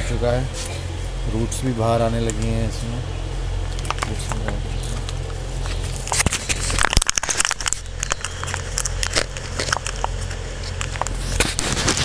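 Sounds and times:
low steady hum: 0.0s - 12.0s
plants rustling in plastic tray: 3.8s - 12.0s.

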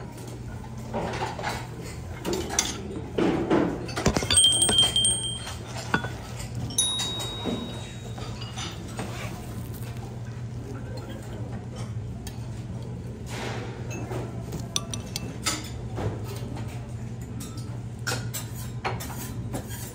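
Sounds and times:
dishes and utensils clinking: 0.9s - 9.4s, 13.8s - 16.5s
steady low hum: 3.8s - 10.8s
ringing clinks: 4.0s - 8.8s.

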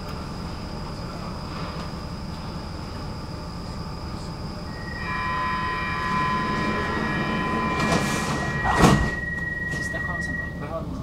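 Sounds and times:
high squeal of train: 3.5s - 11.0s
train rumble: 4.1s - 11.0s.

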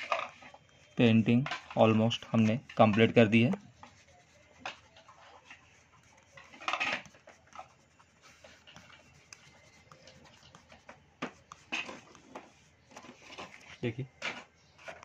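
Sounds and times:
paper rustle: 1.4s - 15.0s
fingers brushing paper: 1.6s - 13.7s.

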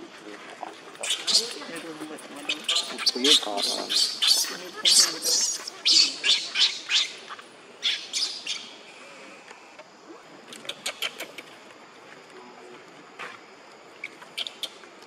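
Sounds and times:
short sharp monkey calls: 1.0s - 1.6s, 2.6s - 8.9s
baby monkey screaming: 1.0s - 1.7s, 2.4s - 8.7s.

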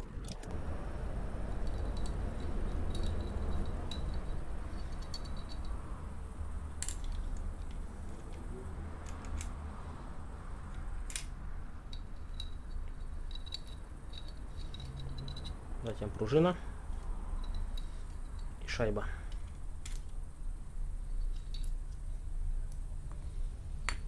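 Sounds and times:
steady low rumble: 0.0s - 24.0s
metal clutch plates clinking: 1.5s - 5.9s, 11.0s - 16.5s, 17.4s - 20.2s.

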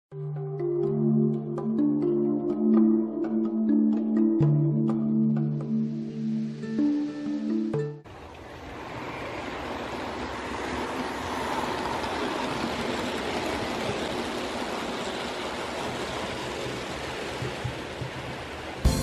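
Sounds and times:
model train wheels on rails: 8.2s - 18.9s.

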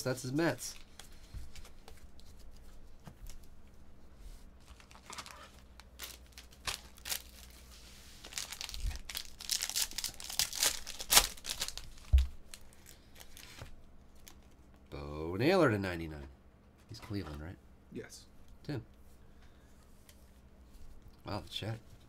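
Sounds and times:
plastic wrapper tearing and crinkling: 4.6s - 14.5s.

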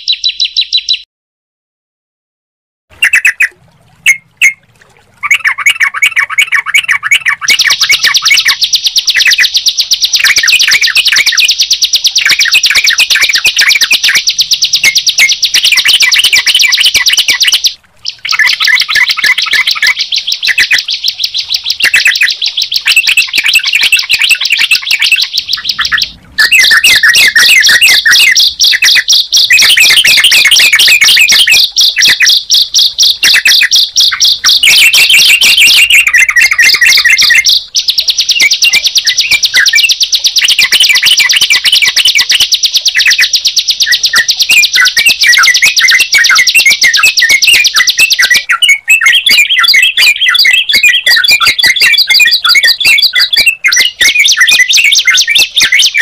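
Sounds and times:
birds trilling and chirping: 0.0s - 1.0s, 2.9s - 56.0s.

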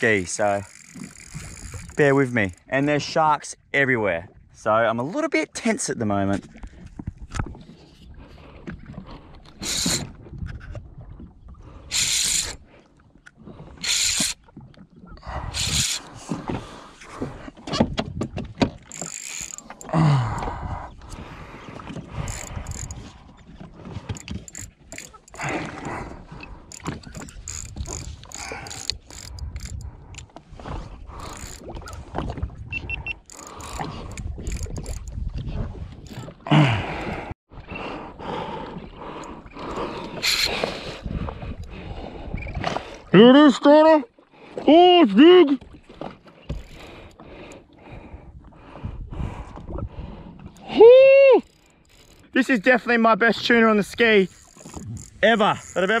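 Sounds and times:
spinning reel being worked: 0.4s - 2.7s, 9.6s - 10.1s, 11.9s - 12.6s, 13.8s - 14.4s, 15.5s - 16.1s, 18.9s - 19.9s, 22.2s - 23.0s, 24.1s - 25.5s, 26.7s - 29.8s, 31.2s - 32.0s, 33.0s - 35.1s, 51.4s - 52.3s, 54.0s - 56.0s
water slapping against hull: 6.2s - 37.6s, 38.5s - 50.7s, 53.3s - 56.0s.

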